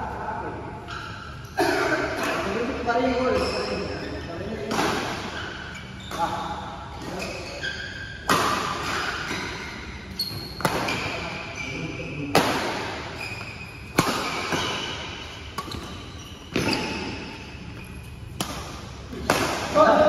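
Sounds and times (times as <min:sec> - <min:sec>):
rackets hitting shuttlecock: 0:04.6 - 0:07.4, 0:08.0 - 0:11.5, 0:12.3 - 0:20.0.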